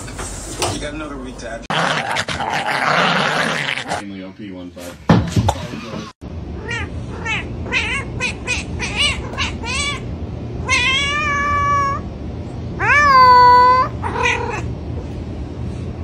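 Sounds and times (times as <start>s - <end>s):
cat meowing: 6.6s - 12.0s, 12.8s - 14.7s.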